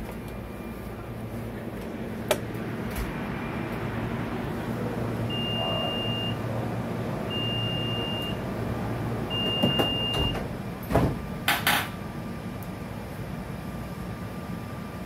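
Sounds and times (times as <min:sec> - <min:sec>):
train low hum: 0:00.0 - 0:15.0
long high warning beeps: 0:05.3 - 0:06.5, 0:07.3 - 0:08.4, 0:09.3 - 0:10.4
sliding doors thudding shut: 0:09.3 - 0:12.0.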